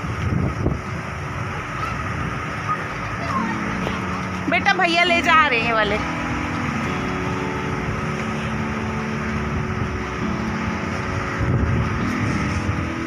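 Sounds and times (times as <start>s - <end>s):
wind buffeting microphone: 0.0s - 13.0s
soft background music chords: 3.0s - 13.0s.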